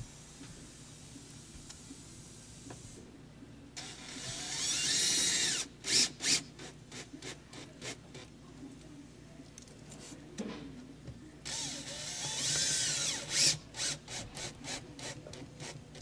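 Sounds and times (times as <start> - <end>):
cordless drill whining: 3.8 - 6.7, 11.5 - 14.7.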